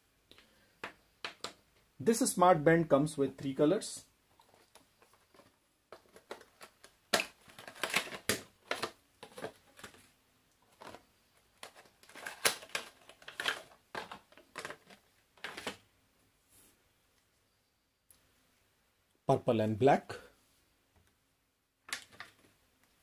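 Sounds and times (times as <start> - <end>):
plastic cases clicking and crinkling: 0.3 - 1.9, 4.4 - 15.8, 21.8 - 22.6.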